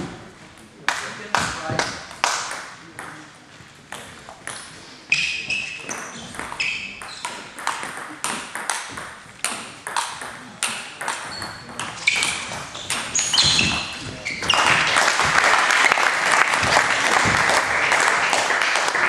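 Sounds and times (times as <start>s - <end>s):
shoes squeaking on wooden floor: 3.5s - 15.4s.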